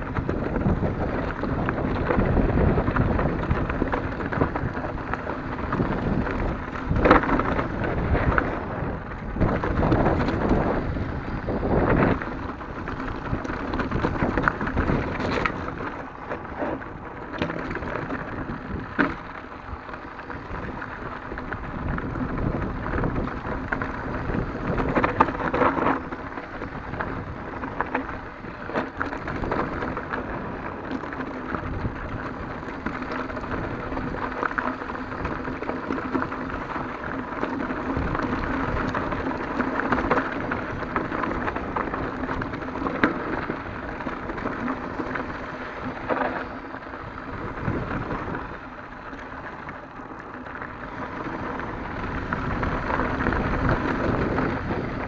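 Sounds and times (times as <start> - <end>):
bike rattling over stones: 0.0 - 55.0
tyres crunching on gravel: 0.0 - 55.0.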